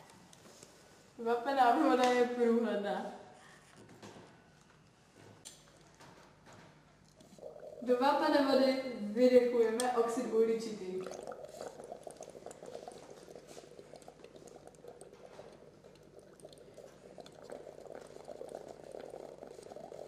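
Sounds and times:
fine bubbling in liquid: 0:07.0 - 0:10.1, 0:10.8 - 0:20.0.

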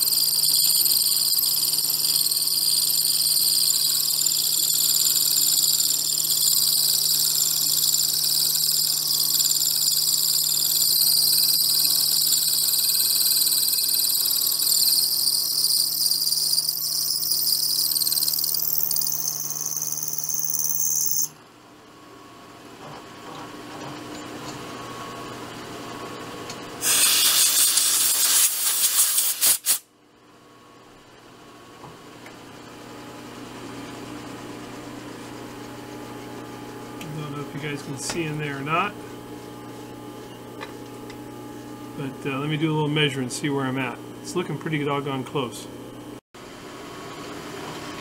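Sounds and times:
milling machine high-pitched whine: 0:00.0 - 0:21.4.

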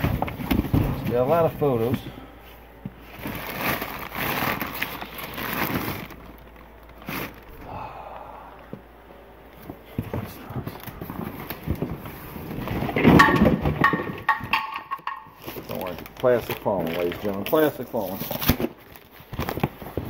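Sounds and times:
plastic bag rustling and crinkling: 0:00.0 - 0:07.6, 0:09.6 - 0:20.0
cardboard boxes knocking and scraping: 0:12.7 - 0:15.2.

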